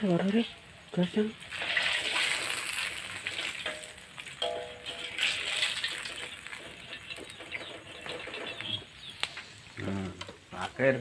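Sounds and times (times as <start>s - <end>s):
oil sizzling in a wok: 0.0s - 11.0s
metal spatula scraping pan: 1.5s - 8.7s.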